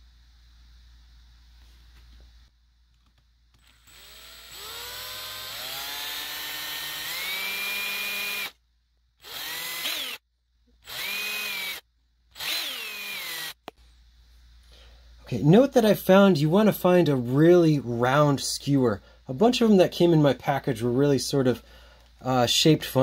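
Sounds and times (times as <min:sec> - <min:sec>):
electric drill whining: 0:03.6 - 0:08.6, 0:09.2 - 0:10.2, 0:10.8 - 0:13.7.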